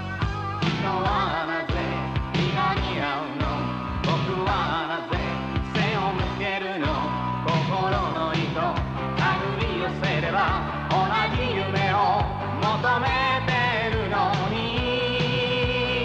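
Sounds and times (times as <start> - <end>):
pop-rock song with band: 0.0 - 16.0
person singing: 0.5 - 16.0.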